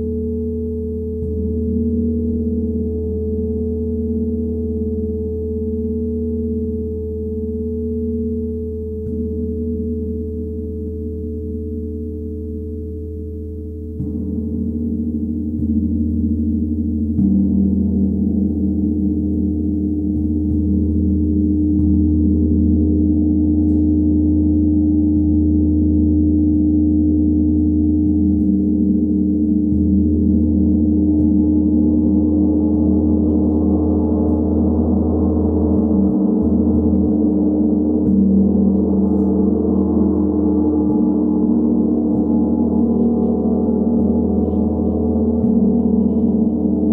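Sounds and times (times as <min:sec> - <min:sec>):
gong drone: 0:00.0 - 0:46.9
light gong strokes: 0:14.0 - 0:46.9.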